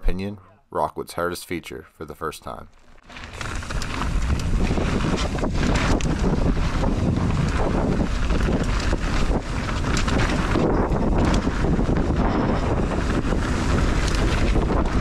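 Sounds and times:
bike knocking and rattling: 0:02.8 - 0:15.0
tyres rumbling on dirt: 0:03.1 - 0:15.0
wind buffeting microphone: 0:03.3 - 0:15.0.

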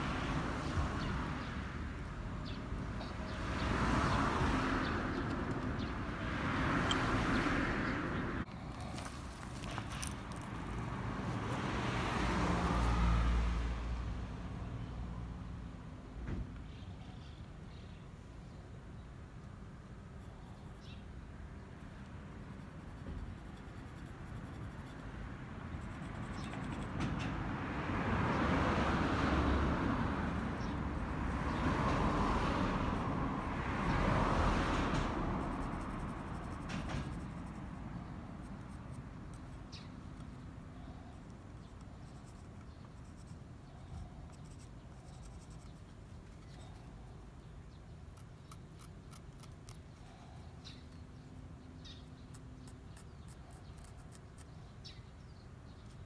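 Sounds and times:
pencil scratching on wood: 0:22.4 - 0:27.2, 0:34.9 - 0:40.3, 0:41.2 - 0:47.0, 0:48.1 - 0:49.9, 0:52.3 - 0:54.5.

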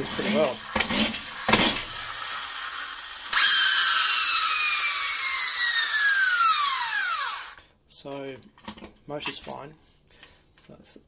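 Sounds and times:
toy car flywheel whirring: 0:00.0 - 0:07.6.

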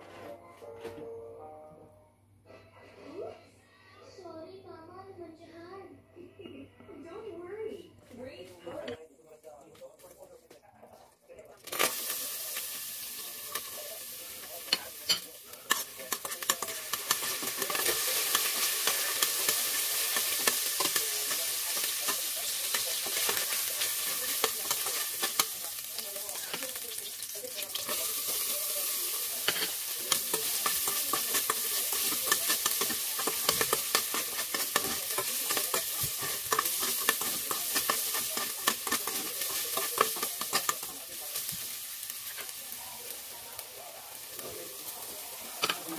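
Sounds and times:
garlic sizzling in hot oil: 0:11.6 - 0:45.9
spoon scraping metal pot: 0:14.5 - 0:25.6, 0:29.2 - 0:41.5.

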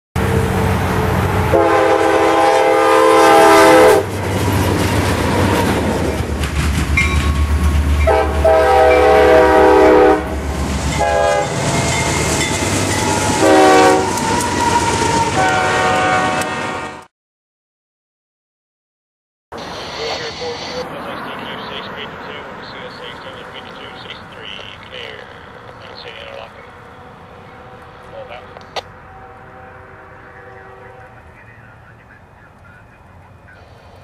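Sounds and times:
locomotive air horn blasts: 0:00.9 - 0:04.1, 0:08.0 - 0:10.4, 0:11.0 - 0:11.6, 0:13.0 - 0:17.1, 0:29.0 - 0:31.3
train wheels rumbling on rails: 0:03.9 - 0:09.5, 0:10.2 - 0:15.6.

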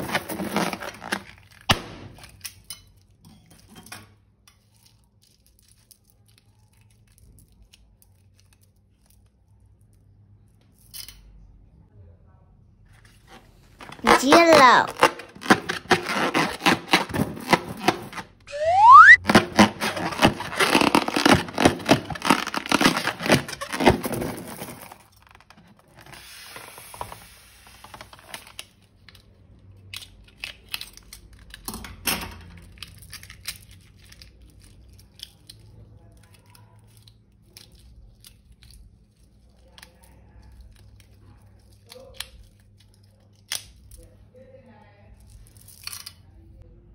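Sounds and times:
rubbery squeak: 0:13.8 - 0:24.4
slime crackling and squishing: 0:18.8 - 0:24.0.

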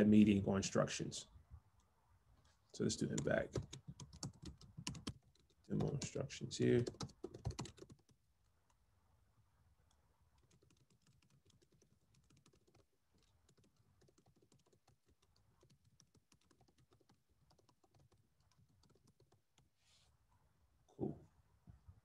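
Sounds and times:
keyboard typing: 0:03.0 - 0:08.2, 0:09.9 - 0:19.7.

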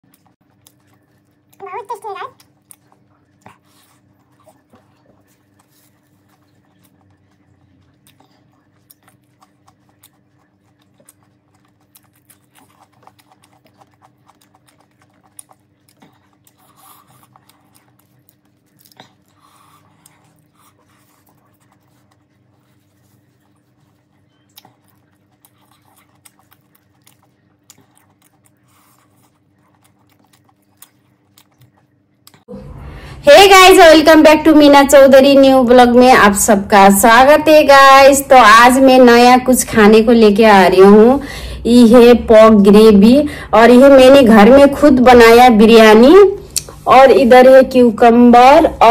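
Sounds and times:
faint steady hum: 0:00.0 - 0:48.9
quiet eating sounds: 0:00.0 - 0:48.9
fingers mixing rice on plate: 0:00.1 - 0:32.1.

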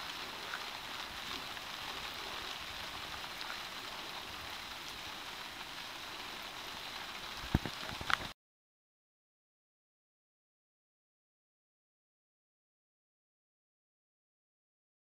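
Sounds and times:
rain on a tarp: 0:00.0 - 0:08.4.

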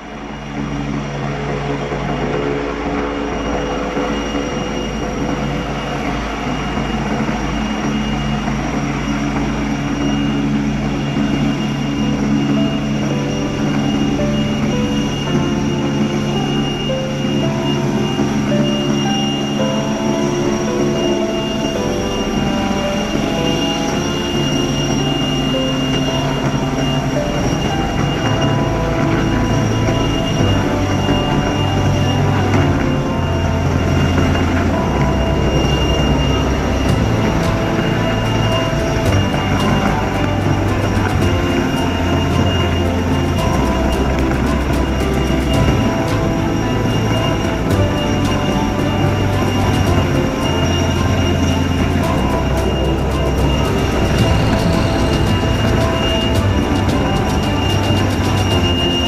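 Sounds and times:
helicopter hovering: 0:00.0 - 0:59.0
turbine whine: 0:00.0 - 0:59.0.

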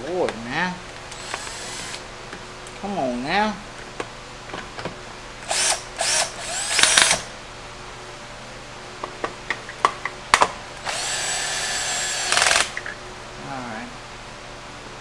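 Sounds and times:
cordless drill motor whine: 0:01.1 - 0:02.0, 0:05.4 - 0:07.3, 0:10.8 - 0:12.8.

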